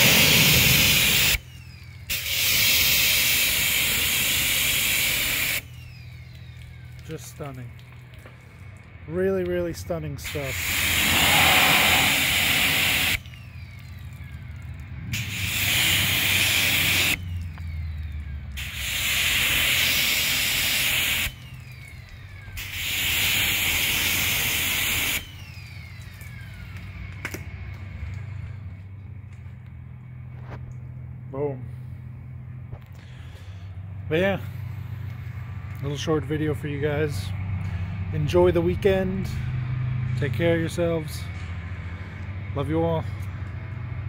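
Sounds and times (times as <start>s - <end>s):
pressure washer spraying metal: 0.0s - 1.5s, 2.1s - 5.7s, 10.2s - 13.3s, 15.1s - 17.2s, 18.6s - 21.4s, 22.6s - 25.3s.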